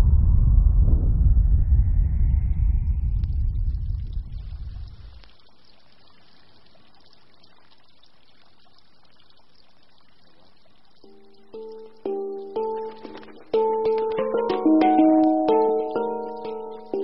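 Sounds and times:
deep rumble: 0:00.0 - 0:05.2
faint rushing noise: 0:00.0 - 0:05.3
music with held notes: 0:11.1 - 0:17.0.

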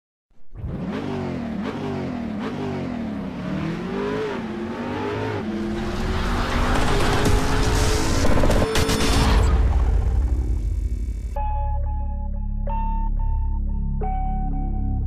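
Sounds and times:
motorcycle engine revving: 0:00.5 - 0:11.3.

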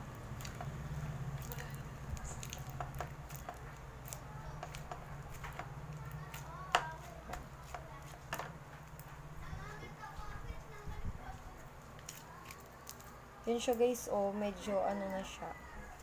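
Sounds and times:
slime squelching and crackling: 0:00.0 - 0:09.2, 0:11.5 - 0:13.2
steady low hum: 0:00.0 - 0:16.0.

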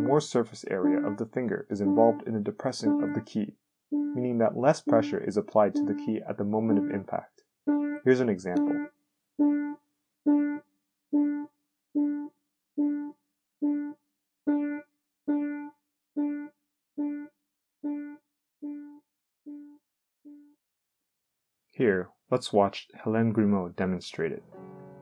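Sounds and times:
piano note repeated: 0:00.0 - 0:00.2.

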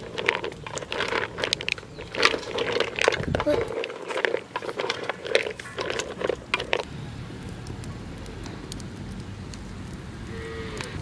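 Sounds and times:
shells clattering in pot: 0:00.0 - 0:06.9
wood fire rumbling: 0:00.0 - 0:11.0.

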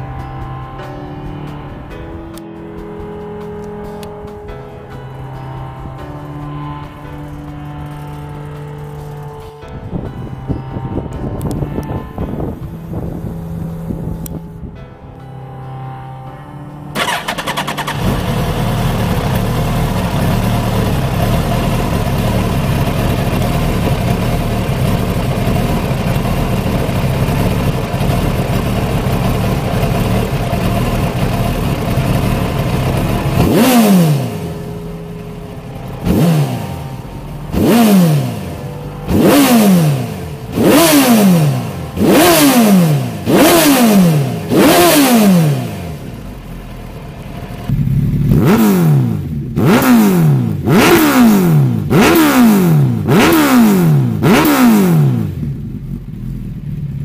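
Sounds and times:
motorcycle engine revving: 0:10.1 - 0:14.8, 0:16.9 - 0:57.0
motorcycle engine idling: 0:11.4 - 0:14.6, 0:17.0 - 0:57.0.

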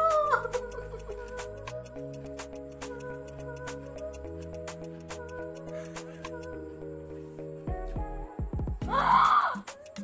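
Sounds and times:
background music with held notes: 0:00.0 - 0:10.0.

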